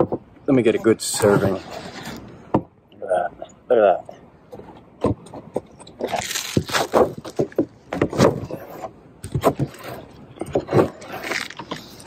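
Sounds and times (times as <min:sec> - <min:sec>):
stick scraping on metal roof: 0:04.6 - 0:12.0.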